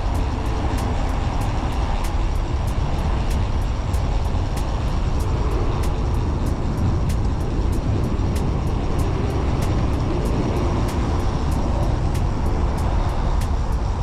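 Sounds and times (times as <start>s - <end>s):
faint regular ticking: 0.0s - 14.0s
wind buffeting microphone: 0.0s - 14.0s.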